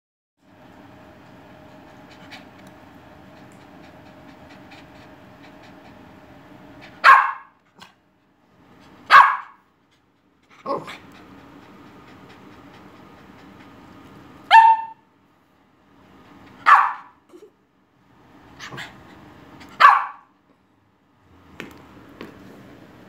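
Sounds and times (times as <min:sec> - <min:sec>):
dog panting: 0:01.4 - 0:07.0, 0:09.8 - 0:14.5, 0:15.9 - 0:16.8
dog barking: 0:07.0 - 0:07.6, 0:09.1 - 0:09.6, 0:14.5 - 0:15.0, 0:16.6 - 0:17.2, 0:19.8 - 0:20.3.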